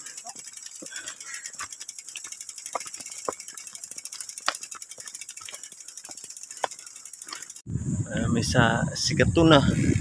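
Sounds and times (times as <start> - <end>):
bike freewheel hub ticking: 0.0 - 7.7.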